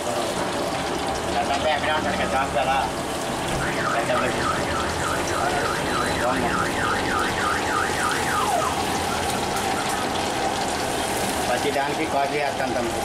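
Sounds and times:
food sizzling in hot oil: 0.0s - 13.0s
electronic alarm warbling: 3.3s - 11.1s.

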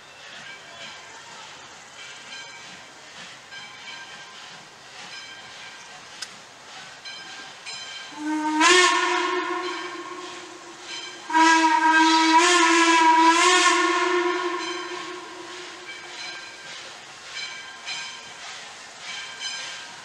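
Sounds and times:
steam locomotive whistle blasts: 8.0s - 18.3s.

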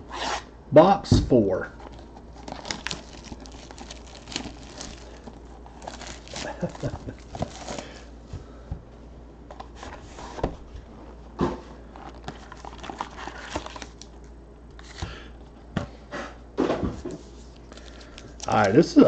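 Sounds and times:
packaging rustling: 1.8s - 8.2s, 11.8s - 15.1s.

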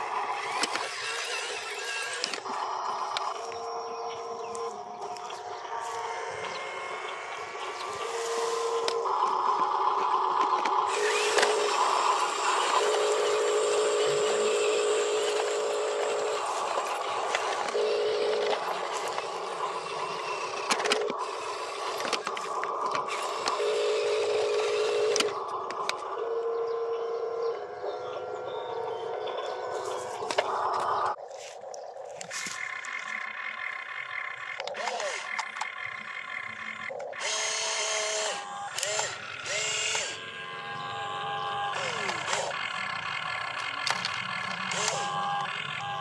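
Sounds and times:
small electric motors whining: 0.0s - 46.0s
clicks: 25.0s - 26.1s.

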